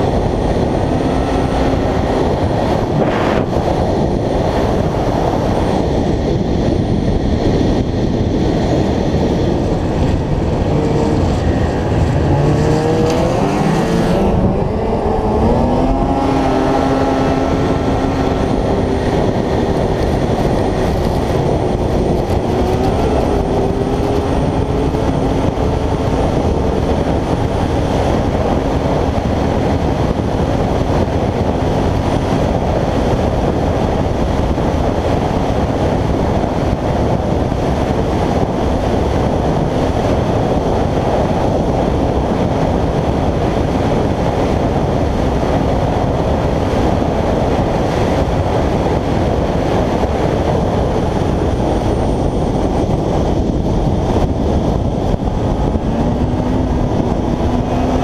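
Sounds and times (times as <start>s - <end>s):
snowmobile engine running: 0.0s - 58.0s
wind and track noise: 0.0s - 58.0s.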